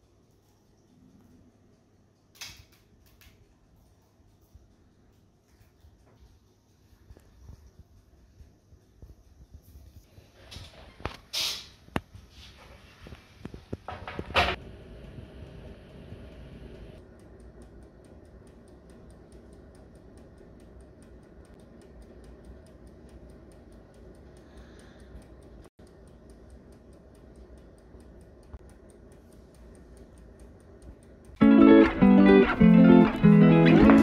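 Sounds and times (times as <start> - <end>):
faint mechanical ticking: 0.0 - 10.1, 14.5 - 31.5
low steady hum: 11.9 - 34.0.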